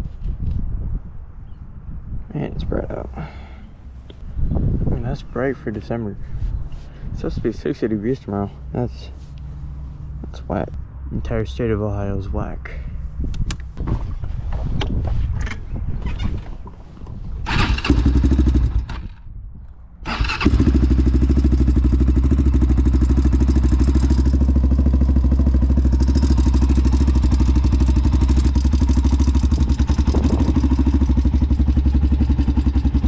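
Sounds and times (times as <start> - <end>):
quad engine idling: 20.4 - 33.0.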